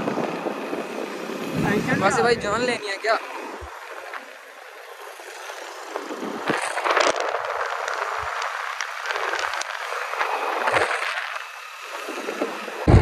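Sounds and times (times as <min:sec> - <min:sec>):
motorbike road noise: 0:00.0 - 0:13.0
wind rushing: 0:01.2 - 0:03.8
scattered crackles: 0:01.4 - 0:13.0.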